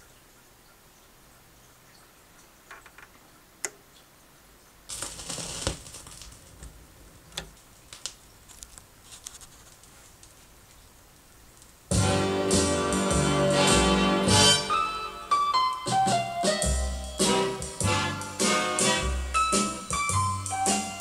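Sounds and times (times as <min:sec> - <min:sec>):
stylus scraping onto record: 0:04.9 - 0:10.9
vinyl surface noise pops: 0:04.9 - 0:10.9
music: 0:11.9 - 0:21.0.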